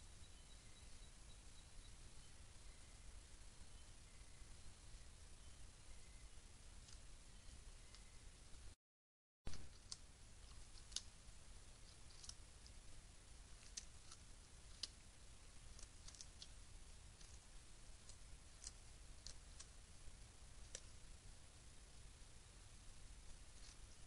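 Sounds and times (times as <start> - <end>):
steady low hiss: 0.0 - 8.8, 9.5 - 24.0
clicks of gnawing: 13.6 - 15.0, 15.7 - 16.6.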